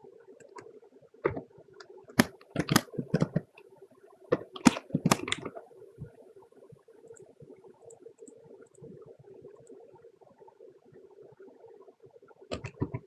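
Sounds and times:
faint steady hum: 0:00.0 - 0:13.0
keyboard typing: 0:02.2 - 0:03.6, 0:04.3 - 0:05.6, 0:12.5 - 0:13.0.

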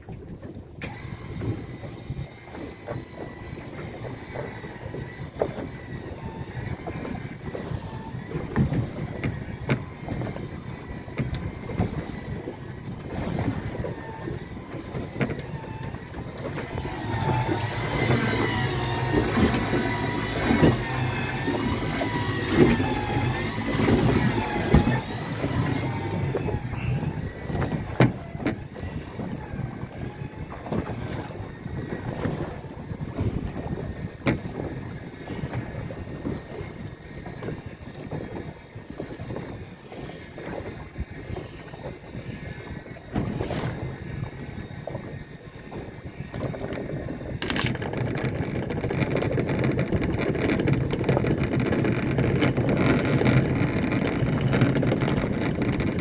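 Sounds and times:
electric winch whine: 0:00.8 - 0:32.9.

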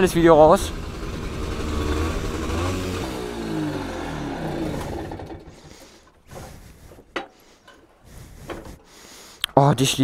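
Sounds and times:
moped engine winding down: 0:00.0 - 0:06.0.

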